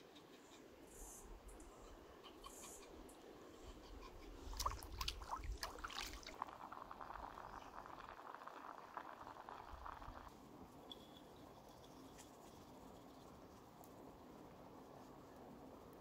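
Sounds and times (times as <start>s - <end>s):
pot boiling hard: 5.4s - 10.3s.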